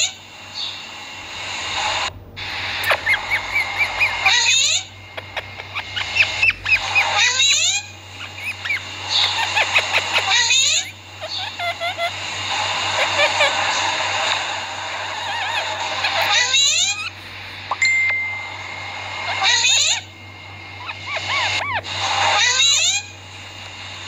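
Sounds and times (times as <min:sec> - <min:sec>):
parakeet chirps: 0:02.6 - 0:23.1
parakeet screeching: 0:02.8 - 0:17.8, 0:19.1 - 0:20.1, 0:20.8 - 0:23.2.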